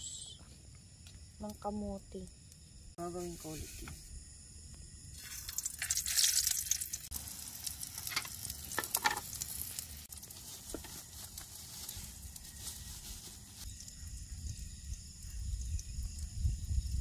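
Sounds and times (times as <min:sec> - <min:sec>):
hotdogs sizzling in a frying pan: 0:05.2 - 0:17.0.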